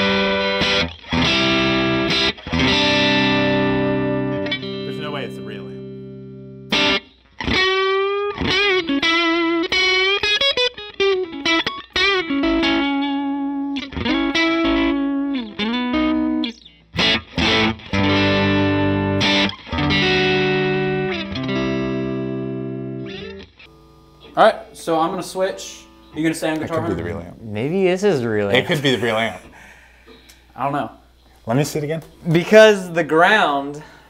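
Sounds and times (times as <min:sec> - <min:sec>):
distorted electric guitar: 0:00.0 - 0:24.6.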